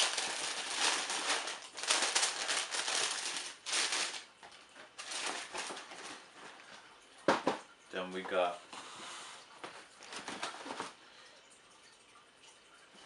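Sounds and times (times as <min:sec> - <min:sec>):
tissue paper crinkling: 0:00.0 - 0:06.7.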